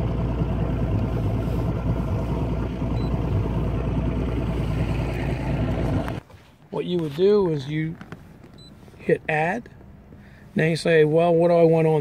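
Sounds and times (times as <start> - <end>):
boat motor running: 0.0 - 6.2.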